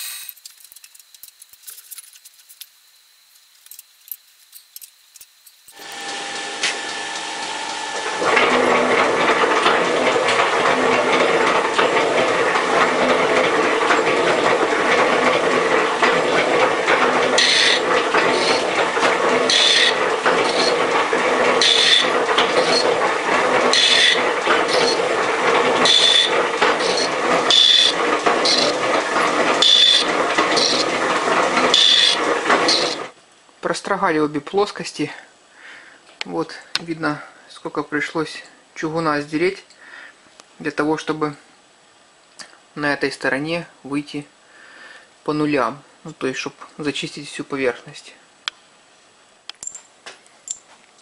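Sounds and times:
metal shaper running: 0:00.0 - 0:33.1
cutting tool scraping metal: 0:17.4 - 0:18.8, 0:19.4 - 0:20.8, 0:21.6 - 0:23.0, 0:23.7 - 0:25.1, 0:25.8 - 0:28.8, 0:29.6 - 0:31.0, 0:31.7 - 0:33.0.

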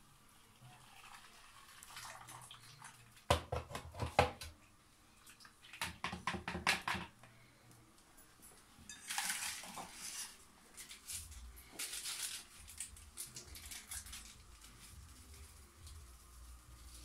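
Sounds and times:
liquid splashing into plastic bowl: 0:01.6 - 0:04.5.

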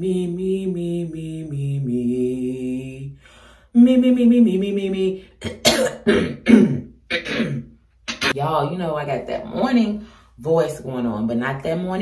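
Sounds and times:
woman singing slow notes: 0:00.0 - 0:05.4
woman coughing: 0:05.4 - 0:08.4.

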